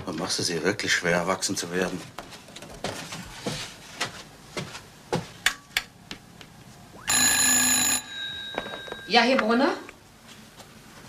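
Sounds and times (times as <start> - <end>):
telephone bell ringing: 7.1 - 9.8.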